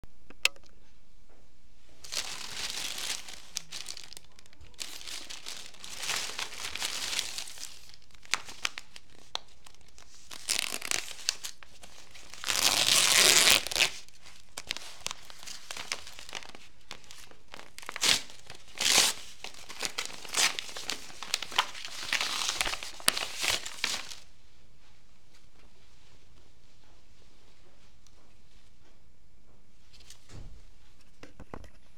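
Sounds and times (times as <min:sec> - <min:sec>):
bag and wrapping paper crinkling: 0:01.8 - 0:24.3.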